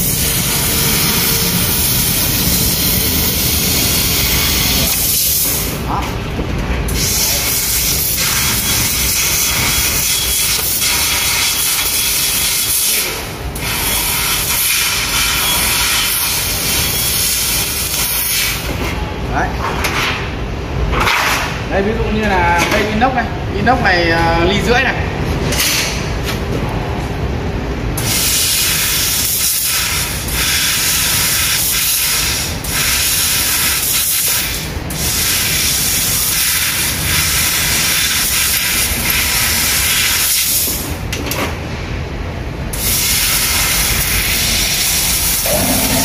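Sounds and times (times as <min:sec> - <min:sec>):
low machine hum: 0:00.0 - 0:11.2, 0:44.3 - 0:46.0
hiss of cutting gas jet: 0:28.0 - 0:40.8.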